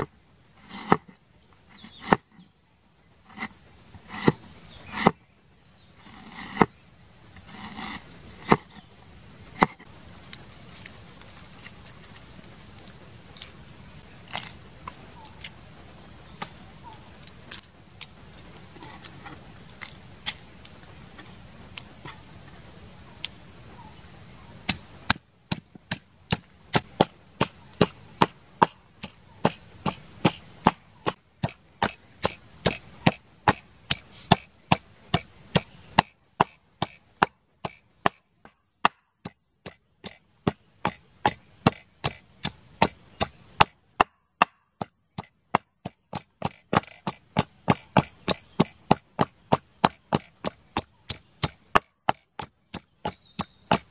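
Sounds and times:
pestle knocking in wooden mortar: 9.5s - 9.9s, 24.7s - 53.9s.

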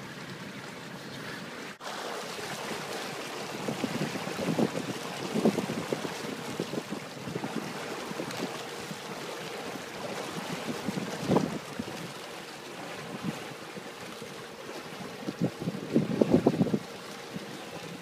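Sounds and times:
water lapping: 0.0s - 18.0s
wind buffeting microphone: 3.4s - 12.3s, 14.9s - 18.0s.

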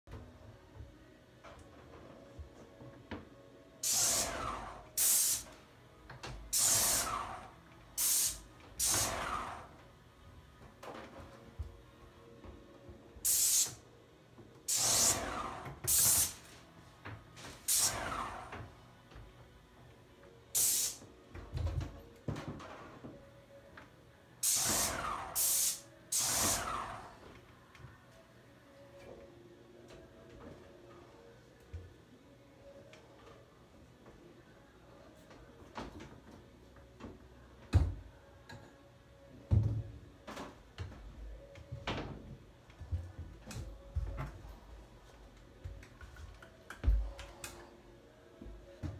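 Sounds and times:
spray paint can hissing: 3.8s - 4.3s, 5.0s - 5.4s, 6.5s - 7.1s, 8.0s - 9.2s, 13.2s - 13.8s, 14.7s - 15.2s, 15.9s - 16.4s, 20.6s - 21.0s, 24.4s - 26.7s.

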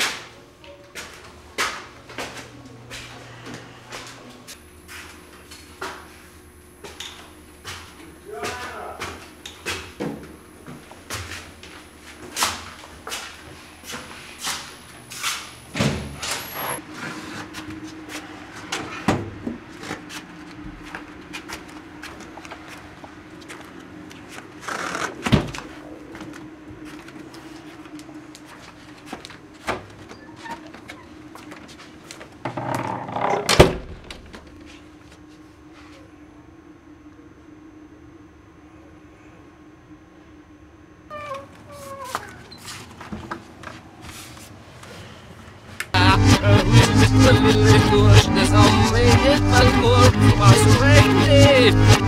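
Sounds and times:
steady low hum: 0.0s - 52.0s
footsteps going down stairs: 0.9s - 6.2s, 6.8s - 16.0s, 17.1s - 32.4s, 41.6s - 45.1s.

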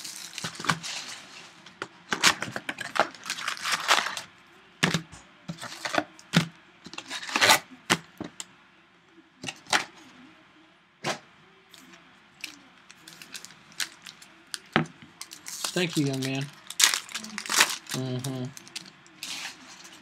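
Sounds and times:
foil packs rustling and crinkling: 2.2s - 4.3s, 15.4s - 20.0s.

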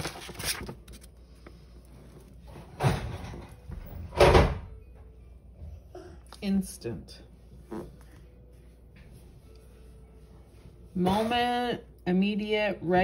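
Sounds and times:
book pages flipping: 0.0s - 2.6s.

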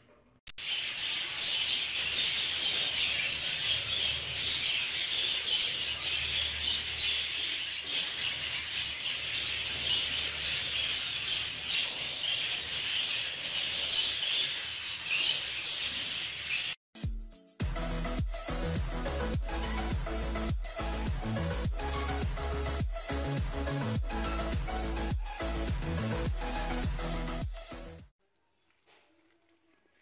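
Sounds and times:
budgerigars chattering: 0.6s - 16.8s.

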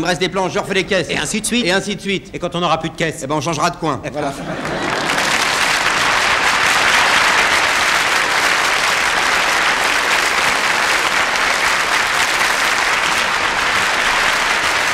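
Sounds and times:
audience applauding: 4.5s - 14.9s.

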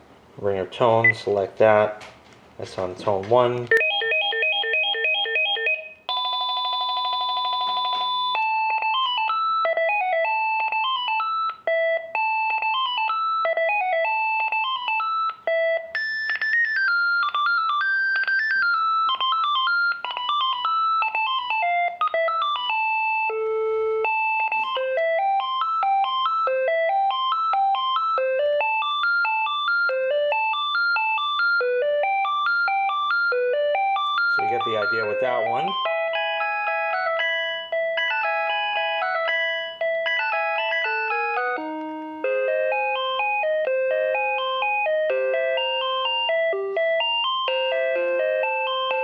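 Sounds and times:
electronic trill ring: 3.8s - 11.5s
beeping electronic melodies: 7.8s - 49.0s.

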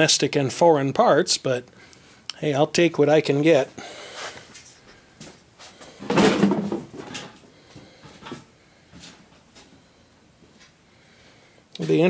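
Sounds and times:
handling clunk: 6.0s - 7.4s.

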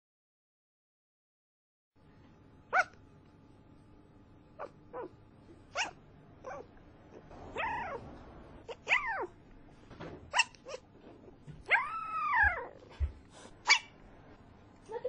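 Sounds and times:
animal high-pitched calls: 7.4s - 8.1s.

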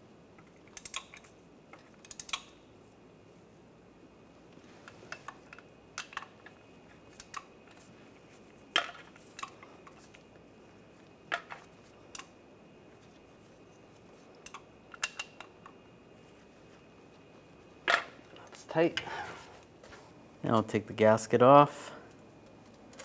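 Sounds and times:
ratchet metal clicks: 0.7s - 1.3s, 2.0s - 2.5s.

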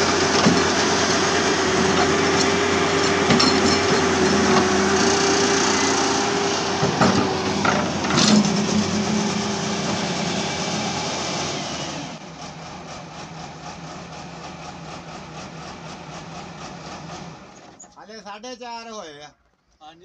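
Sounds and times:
excavator diesel engine whining: 0.0s - 18.0s.

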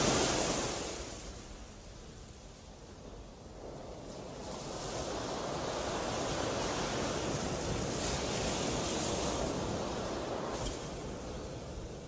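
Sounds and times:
rushing water: 0.0s - 1.7s.

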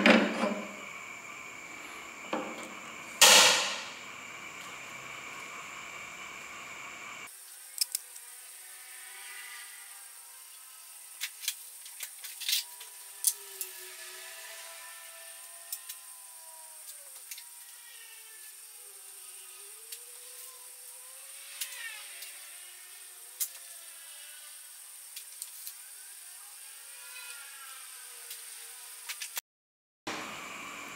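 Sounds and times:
gas burner hissing: 0.0s - 8.0s
faint wavering hum: 0.0s - 27.2s.

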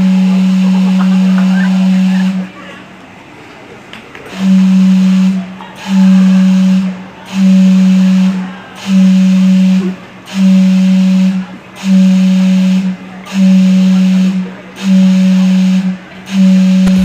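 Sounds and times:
steam whistle blasts: 4.3s - 17.0s.

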